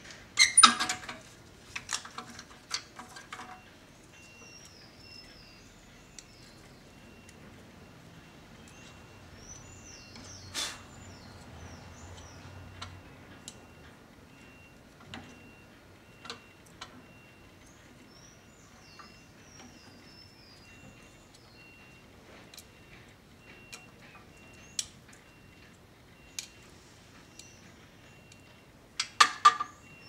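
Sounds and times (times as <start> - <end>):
birds chirping: 3.6 - 28.8, 29.6 - 30.0.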